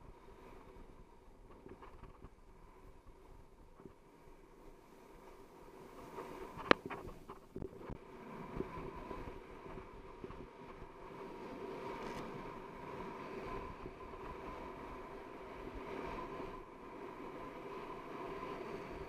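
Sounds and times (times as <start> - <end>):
wind rushing over microphone: 0.0 - 19.0
skis sliding on packed snow: 4.8 - 19.0.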